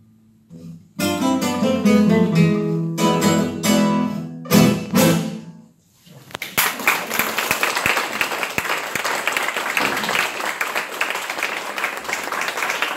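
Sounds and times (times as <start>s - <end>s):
audience applause: 6.4s - 12.9s.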